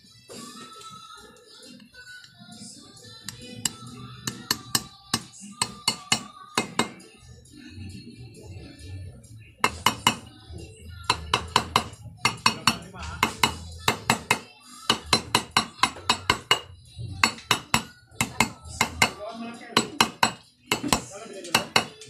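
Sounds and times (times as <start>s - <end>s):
hammer striking metal: 4.3s - 7.0s, 9.6s - 10.3s, 11.1s - 19.2s, 19.8s - 22.0s.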